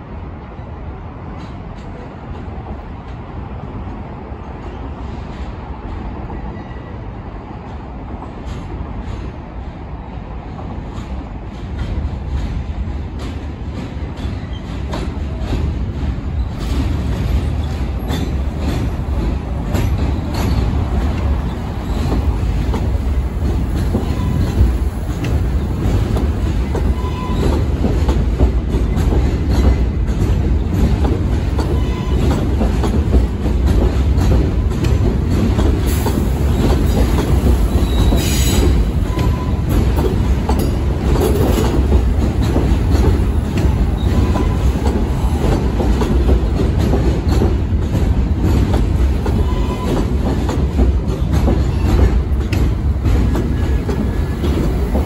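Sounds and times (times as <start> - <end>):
train wheels rumbling on rails: 0.0 - 55.0
rail-joint clicking: 10.6 - 55.0.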